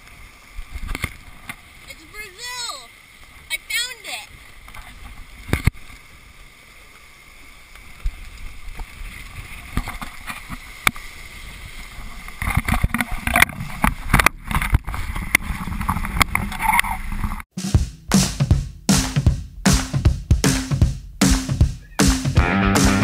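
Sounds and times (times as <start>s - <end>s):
water rushing along hull: 0.0s - 17.5s.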